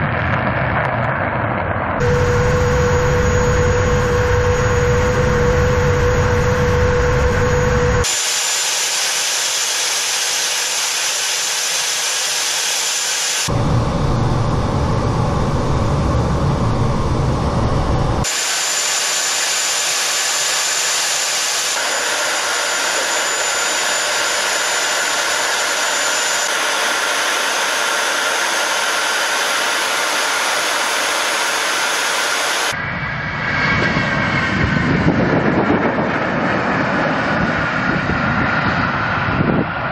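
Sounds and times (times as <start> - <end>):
jet engines roaring outside: 0.0 - 39.9
jet roar inside cockpit: 0.0 - 39.9
thin high whistle: 2.0 - 9.0.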